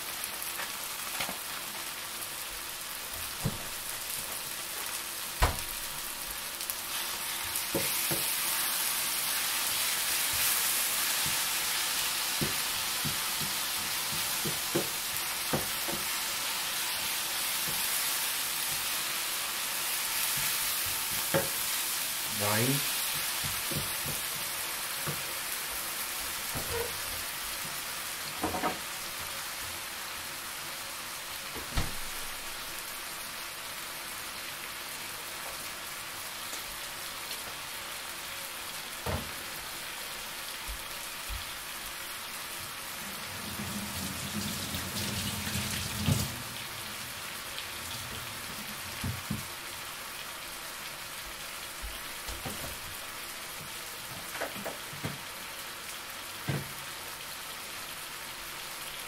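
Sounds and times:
sauce sizzling in a frying pan: 0.0 - 59.0.

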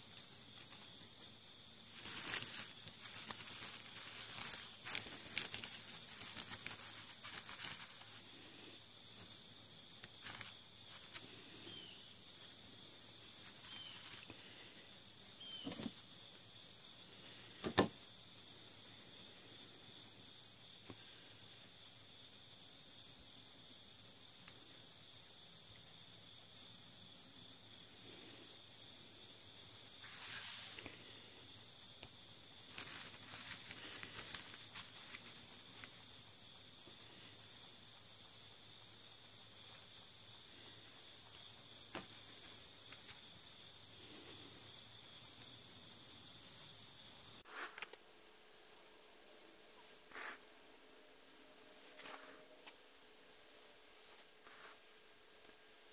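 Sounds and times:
dry pine needles crinkling: 0.0 - 14.6, 30.0 - 31.0, 32.0 - 36.2
insects chirring: 0.0 - 55.9.

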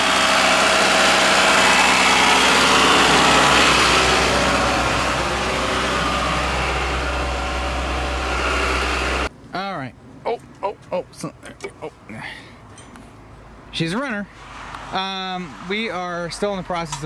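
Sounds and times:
car engine running: 0.0 - 9.3.

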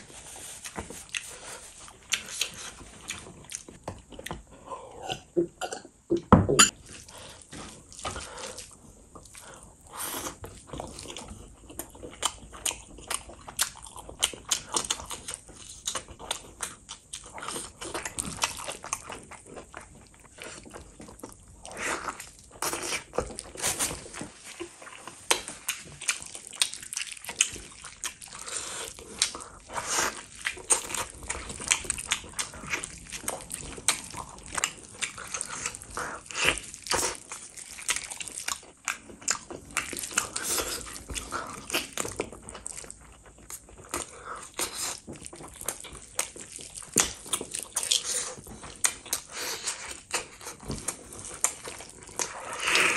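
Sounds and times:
wet chewing and smacking: 0.0 - 5.3, 6.7 - 52.9.

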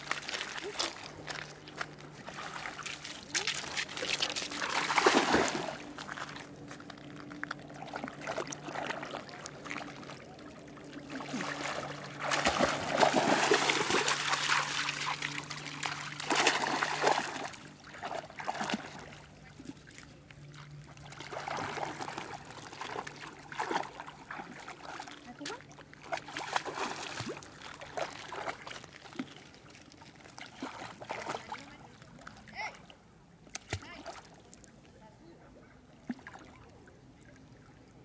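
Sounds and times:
dog splashing through water: 0.0 - 10.1, 11.1 - 19.7, 20.6 - 32.3.

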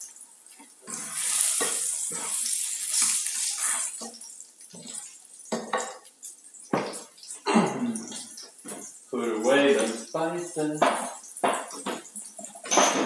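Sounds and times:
patty sizzling in frying pan: 0.0 - 13.0
spatula scraping and tapping pan: 0.5 - 7.4, 8.0 - 9.1, 10.8 - 13.0.

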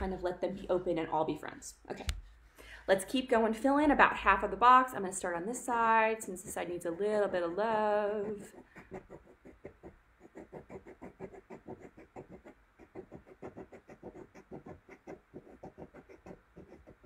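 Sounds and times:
pen scratching on paper: 6.2 - 17.0.

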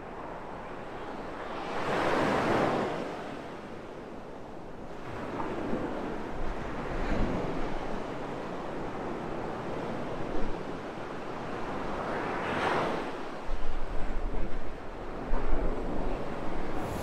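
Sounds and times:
wind buffeting microphone: 13.2 - 17.0
surf breaking on beach: 16.3 - 17.0.

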